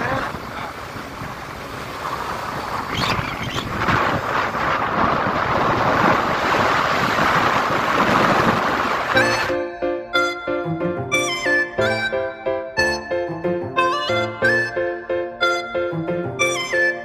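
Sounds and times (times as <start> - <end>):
wind rushing over microphone: 0.0 - 9.5
road noise: 0.0 - 12.1.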